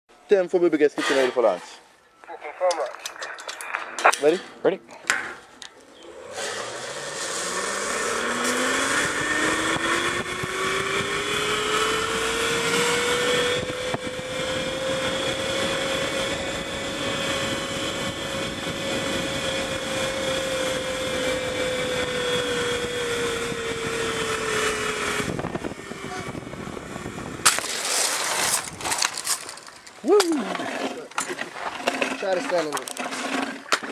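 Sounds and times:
zipline pulleys whining on cable: 0:05.9 - 0:33.8
rush of wind: 0:06.2 - 0:30.2.

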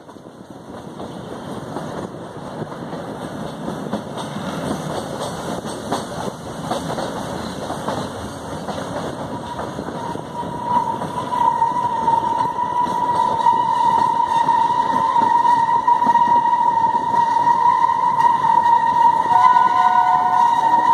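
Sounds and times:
train rumbling: 0:00.0 - 0:20.9
wheels clicking over rail joints: 0:00.0 - 0:20.9
high wheel squeal: 0:09.4 - 0:20.9.

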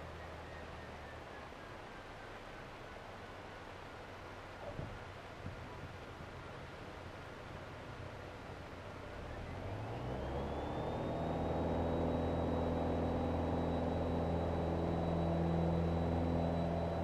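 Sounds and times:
high engine whine: 0:00.0 - 0:17.0
aircraft engine and propeller: 0:03.8 - 0:17.0.

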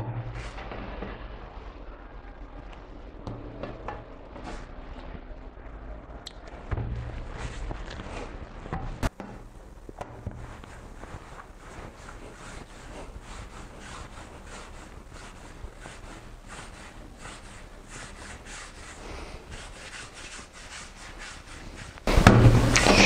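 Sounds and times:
hands rubbing dough on marble: 0:06.9 - 0:23.0.

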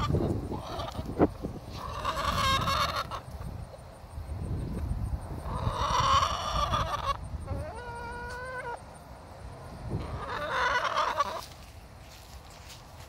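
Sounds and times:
chicken calling: 0:00.0 - 0:03.6, 0:05.4 - 0:08.9, 0:10.0 - 0:11.7.

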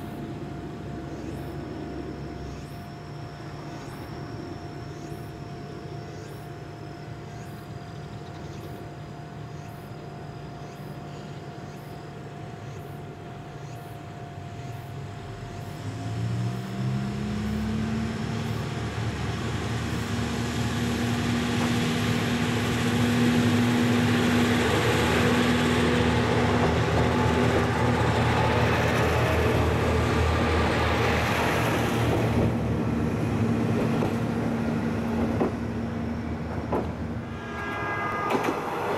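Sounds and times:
train running noise: 0:00.0 - 0:38.9
diesel engine idling and revving: 0:15.3 - 0:36.8.

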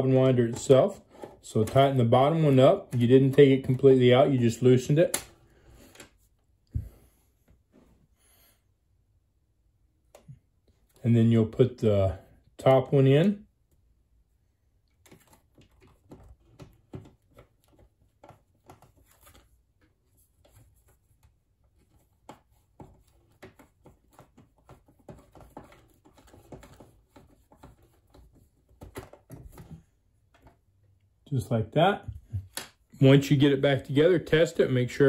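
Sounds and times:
clicks and scrapes of plastic parts: 0:00.2 - 0:04.1, 0:14.9 - 0:30.7.

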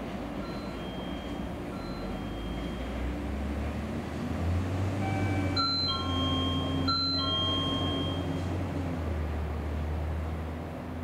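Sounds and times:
freight train rumbling: 0:00.0 - 0:11.0
electronic two-note chime: 0:00.4 - 0:02.9, 0:05.1 - 0:08.4.

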